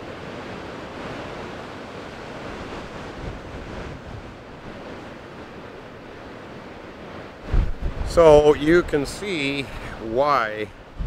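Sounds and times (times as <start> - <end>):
waves breaking over rocks: 0.0 - 11.0.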